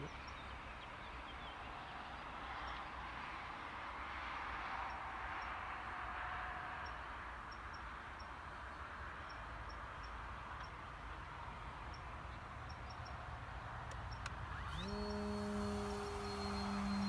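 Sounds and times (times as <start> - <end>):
steady outdoor hiss: 0.0 - 17.0
faint high chirps: 14.1 - 17.0.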